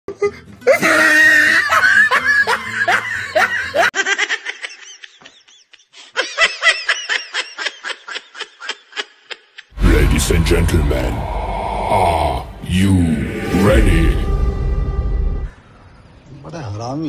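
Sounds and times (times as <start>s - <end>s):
rapid ha-ha-ha laughing: 0.3s - 10.0s
overlapping laughter: 0.7s - 9.7s.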